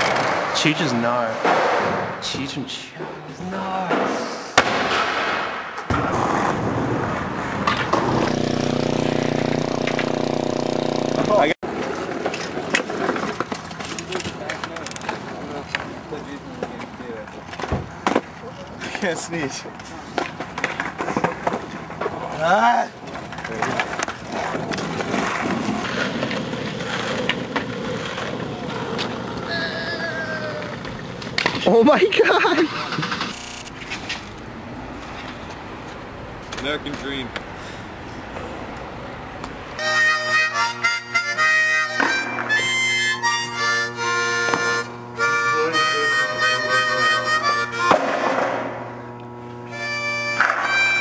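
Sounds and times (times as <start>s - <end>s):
skateboard wheels rolling on concrete: 0.0s - 1.4s, 5.5s - 39.8s
steady hum: 7.8s - 11.6s
skateboard clack: 23.1s - 29.5s, 47.8s - 48.8s, 50.3s - 51.0s.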